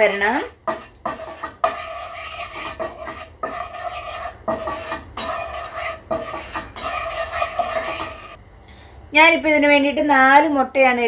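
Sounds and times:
utensil scraping a pan: 0.0s - 8.4s.

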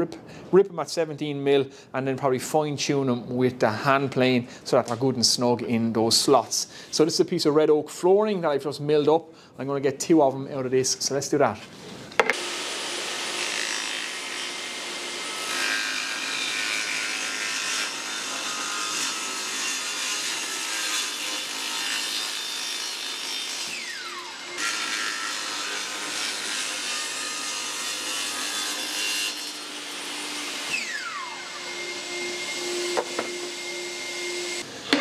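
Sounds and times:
table saw cutting wood: 12.2s - 35.0s.

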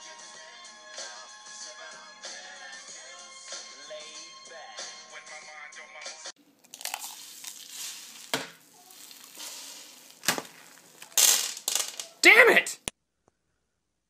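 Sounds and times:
egg sizzling on a griddle: 6.7s - 11.2s
loud burst of hiss: 7.2s - 11.0s.

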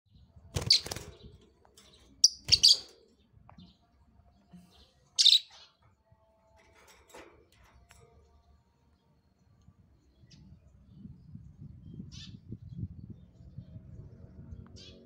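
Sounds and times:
lovebird shrill chirps: 2.2s - 2.8s, 5.2s - 5.5s.

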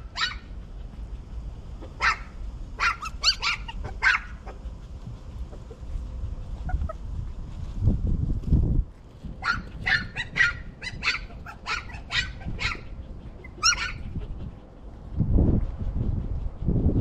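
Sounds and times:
dog barking: 0.0s - 0.5s, 1.9s - 4.6s, 9.4s - 14.0s
low rumble: 0.0s - 17.0s.

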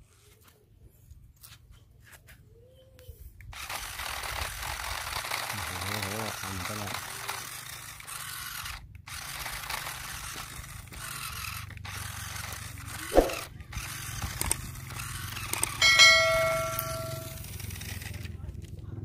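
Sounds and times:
toy motor whirring and grinding: 3.5s - 18.5s
electronic chime: 15.8s - 17.4s.

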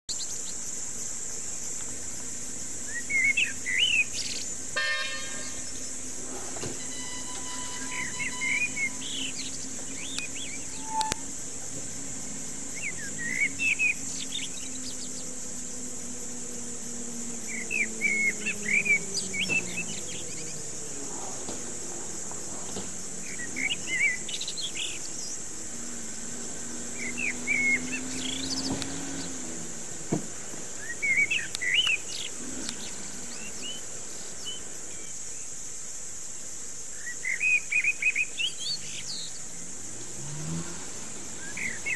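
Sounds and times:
high-pitched insect drone: 0.1s - 41.9s
bird chirping: 2.8s - 29.7s, 30.7s - 35.5s, 41.3s - 41.9s.

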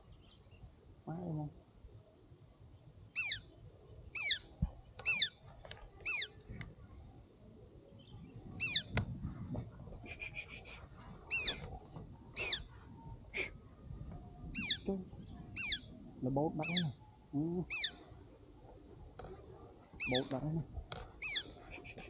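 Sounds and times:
shrill downward-sweeping bird call: 3.2s - 3.5s, 4.2s - 4.4s, 5.0s - 5.4s, 6.0s - 6.4s, 8.6s - 8.9s, 11.3s - 11.6s, 12.4s - 12.7s, 14.5s - 14.9s, 15.5s - 16.0s, 17.7s - 18.0s, 20.0s - 20.3s, 21.2s - 22.0s.

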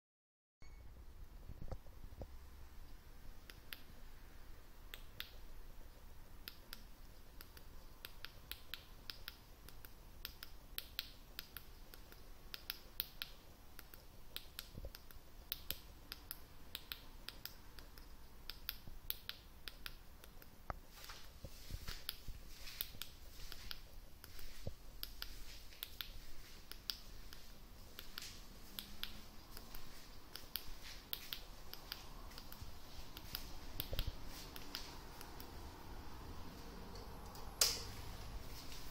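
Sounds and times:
faint sharp clicks: 22.8s - 35.5s.

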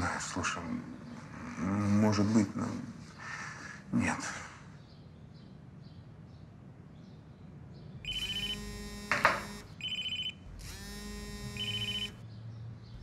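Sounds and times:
phone ringtone beeping and chiming: 8.1s - 12.2s.

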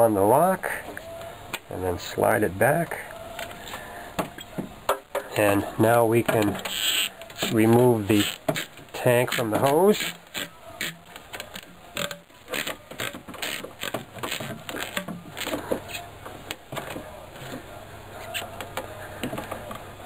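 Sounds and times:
plastic and rubber squeaks and clicks: 3.1s - 4.7s, 6.2s - 19.9s.

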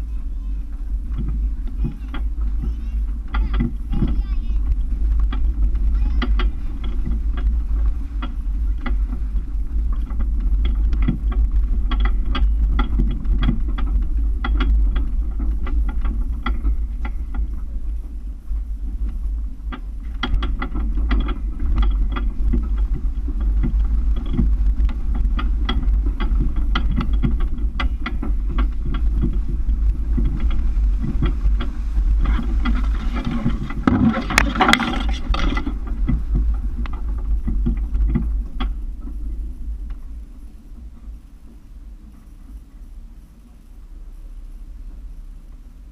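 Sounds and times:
rocks knocking vehicle: 0.0s - 42.6s
muffled engine rumble: 0.0s - 45.9s.

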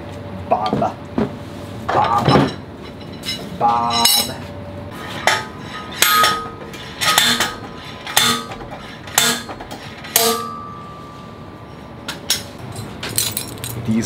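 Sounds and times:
hammer striking steel tube: 5.2s - 11.1s.

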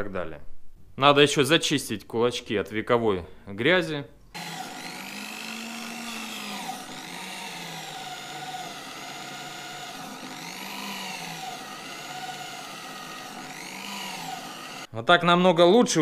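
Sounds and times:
angle grinder wire brush whining: 4.4s - 14.9s.

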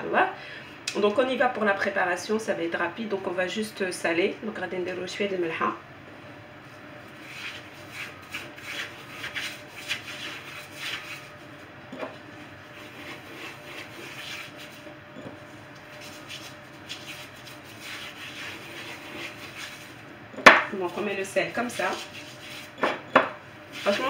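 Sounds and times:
hands rubbing raw meat: 6.6s - 11.7s, 12.4s - 14.8s, 15.6s - 20.0s, 20.8s - 22.8s, 23.7s - 24.0s.

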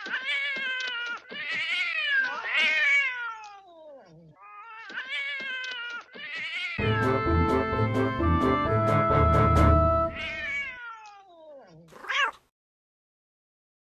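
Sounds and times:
cat meowing: 0.0s - 6.8s, 10.2s - 12.5s
organ music: 6.8s - 10.5s.

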